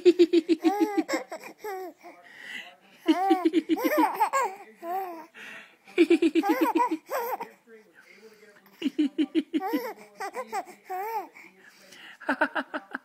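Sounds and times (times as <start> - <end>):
baby laughing: 0.0 - 2.0, 3.0 - 5.2, 6.0 - 7.6, 9.2 - 11.4.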